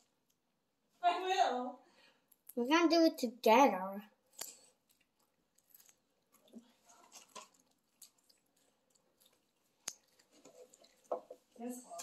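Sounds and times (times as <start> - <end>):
faint chewing: 4.2 - 12.0.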